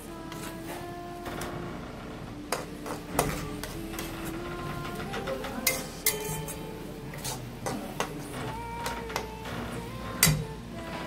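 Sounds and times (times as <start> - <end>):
metal spatula scraping a pan: 0.0 - 0.9, 2.5 - 9.3.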